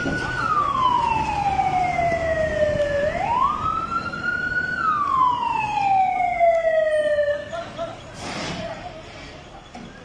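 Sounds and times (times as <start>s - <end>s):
fire engine siren wailing: 0.0s - 7.7s.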